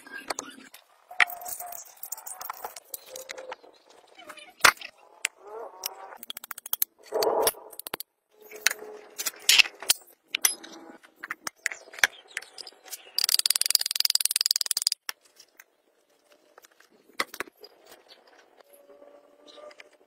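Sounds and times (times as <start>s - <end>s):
metal parts clinking and knocking: 7.7s - 15.0s.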